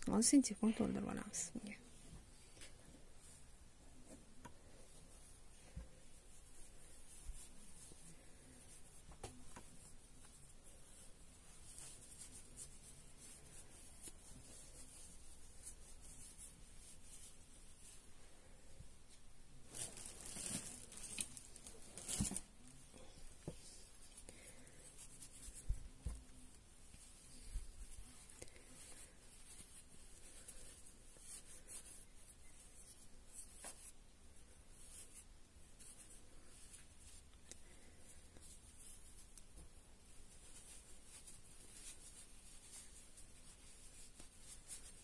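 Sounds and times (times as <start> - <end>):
stuffing rustling and tearing: 19.6 - 22.7.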